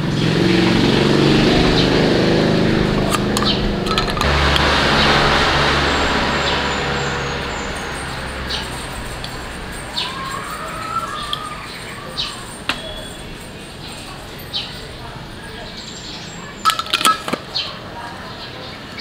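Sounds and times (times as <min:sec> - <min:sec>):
vehicle engine rumbling: 0:00.0 - 0:18.0
spoon clinking against glass jar: 0:03.1 - 0:04.3, 0:08.6 - 0:14.8, 0:16.6 - 0:17.4.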